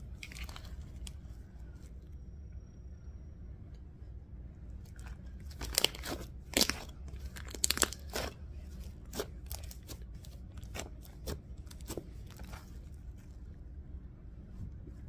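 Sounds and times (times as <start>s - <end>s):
slime clicking and popping: 5.5s - 8.3s.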